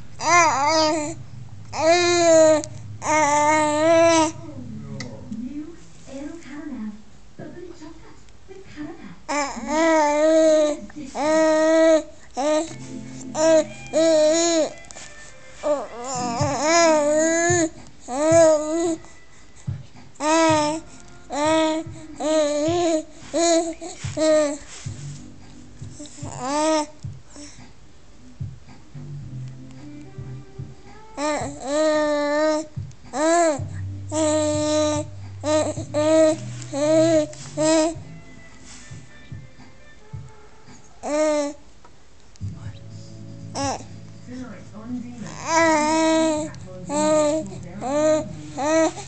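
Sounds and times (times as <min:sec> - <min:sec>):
baby cooing and babbling: 0:00.2 - 0:04.5, 0:09.3 - 0:24.9, 0:25.8 - 0:27.6, 0:30.9 - 0:38.1, 0:40.1 - 0:41.6, 0:43.6 - 0:43.9, 0:45.2 - 0:49.0.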